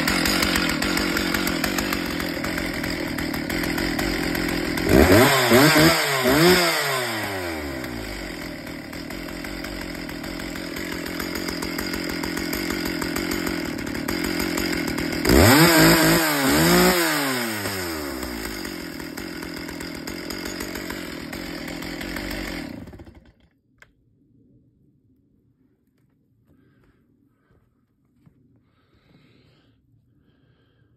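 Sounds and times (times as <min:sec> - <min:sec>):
chainsaw engine revving and idling: 0:00.0 - 0:23.4.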